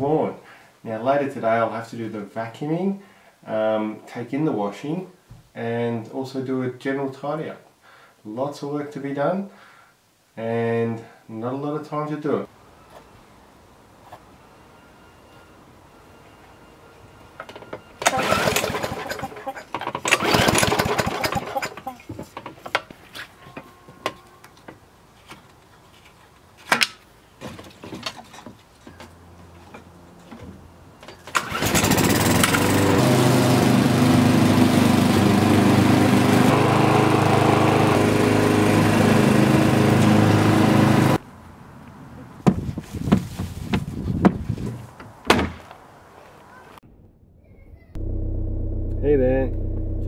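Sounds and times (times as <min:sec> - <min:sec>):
lawn mower engine running: 0:18.0 - 0:22.0, 0:31.3 - 0:41.2, 0:48.0 - 0:50.0.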